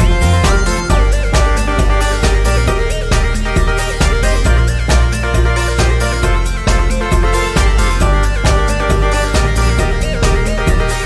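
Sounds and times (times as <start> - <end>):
background music with bass: 0.0 - 11.0.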